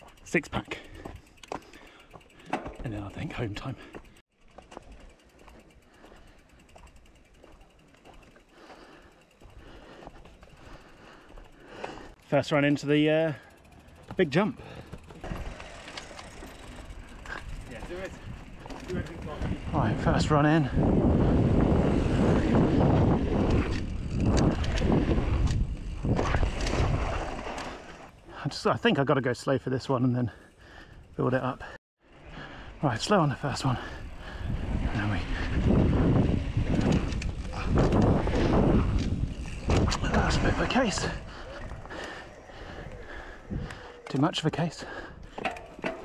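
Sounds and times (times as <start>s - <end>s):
bicycle freehub ticking: 0.0s - 26.7s, 30.3s - 46.0s
bike tyre noise on dirt: 0.0s - 28.7s, 30.3s - 46.0s
bike rattling: 0.0s - 29.1s, 30.3s - 46.0s
wind buffeting microphone: 16.8s - 27.5s, 33.8s - 46.0s.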